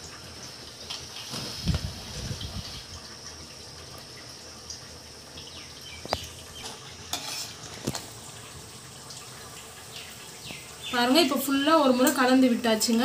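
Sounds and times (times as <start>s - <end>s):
ladle scraping a metal pot: 6.6s - 8.1s.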